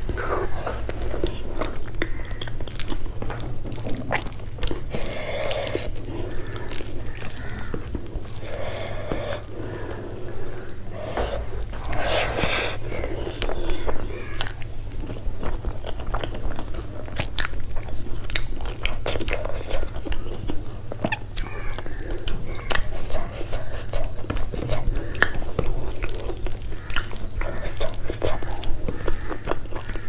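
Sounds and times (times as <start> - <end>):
close chewing with mouth clicks: 0.0 - 30.0
steady low hum: 0.0 - 30.0
breathing: 8.4 - 13.9.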